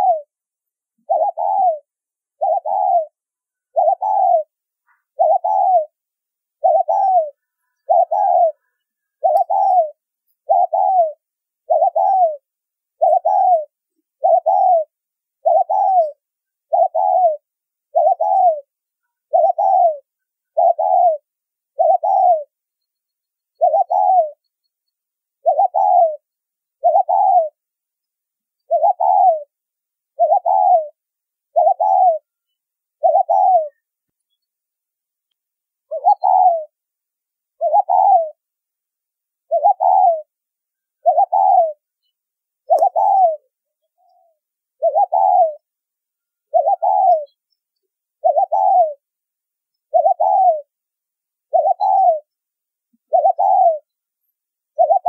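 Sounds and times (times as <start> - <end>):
dove cooing: 0.0 - 0.4, 1.0 - 6.0, 6.6 - 22.5, 23.5 - 24.5, 25.4 - 27.6, 28.6 - 32.3, 33.0 - 33.8, 35.8 - 36.8, 37.6 - 38.4, 39.5 - 40.4, 41.0 - 41.9, 42.6 - 45.7, 46.4 - 47.4, 48.2 - 49.0, 49.9 - 50.7, 51.4 - 52.3, 53.0 - 53.9, 54.7 - 55.0.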